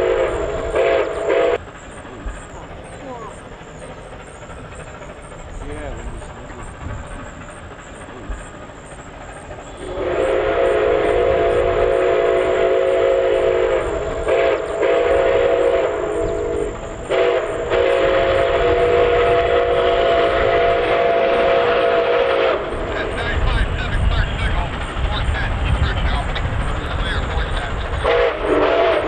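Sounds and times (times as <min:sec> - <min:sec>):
steam whistle blasts: 0:00.0 - 0:01.6, 0:09.7 - 0:23.2, 0:28.0 - 0:29.0.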